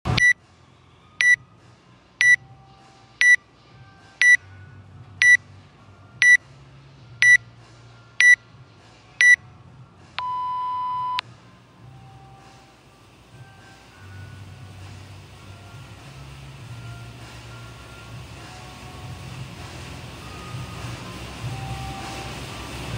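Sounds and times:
long lower beep: 0:00.1 - 0:00.4, 0:10.2 - 0:11.2
short high beeps: 0:00.1 - 0:00.4, 0:10.2 - 0:11.2.

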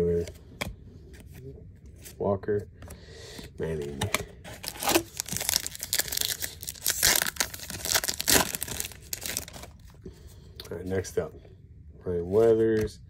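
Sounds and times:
plastic wrapper crinkling: 0:04.5 - 0:09.9
plastic wrapper ripping: 0:04.6 - 0:09.8.

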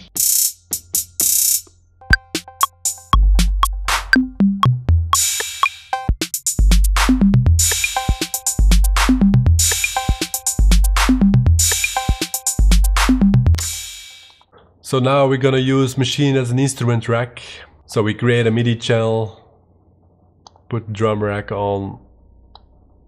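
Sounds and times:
hi-hat and cymbal washes: 0:00.0 - 0:01.6, 0:05.2 - 0:14.4
long low kick drums: 0:06.6 - 0:07.9, 0:08.6 - 0:09.9, 0:10.6 - 0:11.9, 0:12.6 - 0:13.6.

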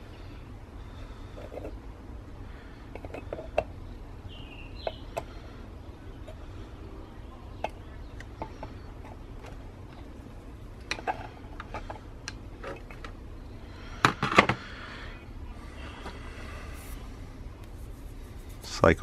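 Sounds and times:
steady low hum: 0:00.0 - 0:19.0
plastic clacks: 0:10.8 - 0:13.2.

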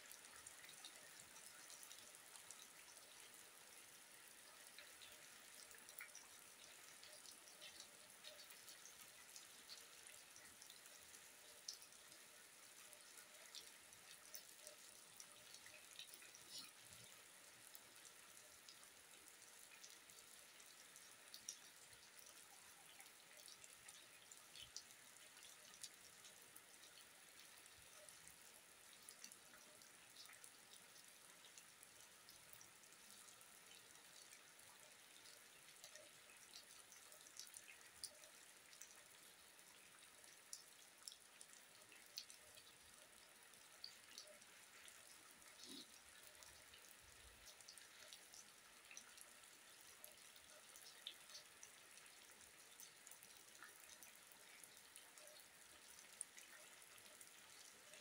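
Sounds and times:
scattered drips: 0:00.0 - 0:58.0.

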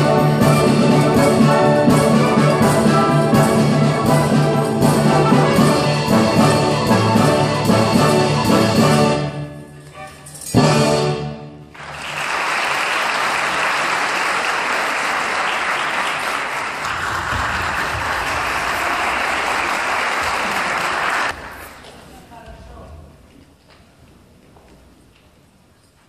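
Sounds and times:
audience applauding: 0:11.7 - 0:21.6.

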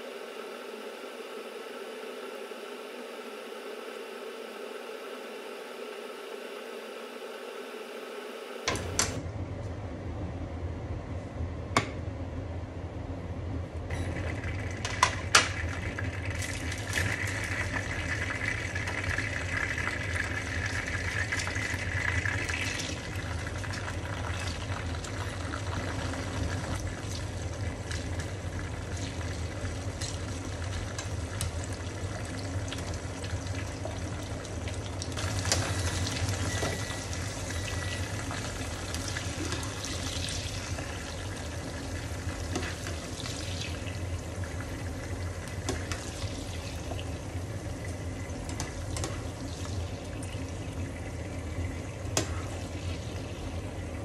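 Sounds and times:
oil sizzling and crackling: 0:14.2 - 0:54.0.

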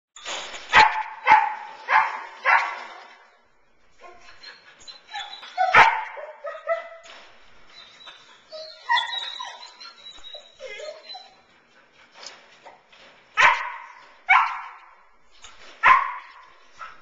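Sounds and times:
dog barking: 0:00.7 - 0:03.0, 0:05.6 - 0:07.0, 0:13.4 - 0:14.8, 0:15.8 - 0:17.0
dog whining and yelping: 0:04.0 - 0:07.1, 0:07.7 - 0:11.6.

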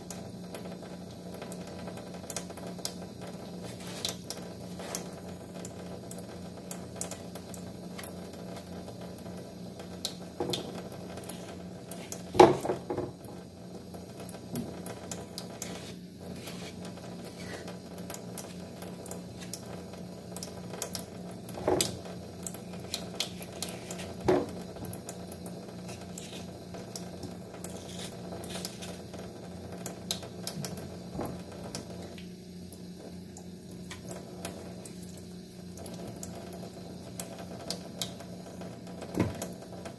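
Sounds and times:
tap water trickling into sink: 0:00.0 - 0:13.4, 0:14.0 - 0:39.9
knife scraping fruit: 0:15.6 - 0:17.6, 0:25.9 - 0:26.5, 0:27.7 - 0:29.0.

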